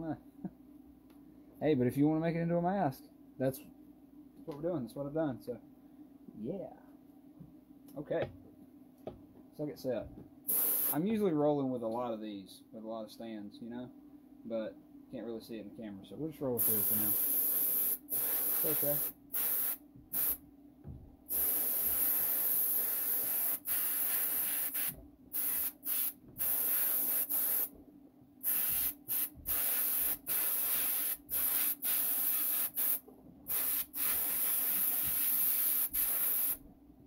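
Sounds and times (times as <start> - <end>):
spray paint hissing: 10.5 - 11.0, 16.6 - 20.4, 21.3 - 27.7, 28.4 - 36.6.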